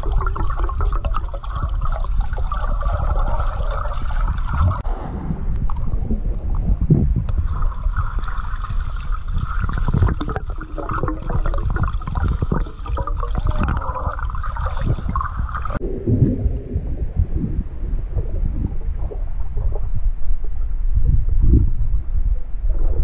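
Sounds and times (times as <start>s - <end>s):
muffled underwater rushing: 0.0s - 23.0s.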